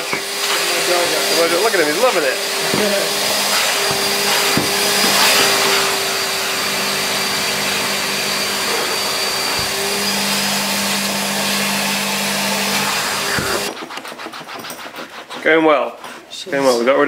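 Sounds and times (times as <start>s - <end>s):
vacuum cleaner whining: 0.0s - 14.6s
nozzle knocking on seat: 3.8s - 5.2s, 9.5s - 9.8s.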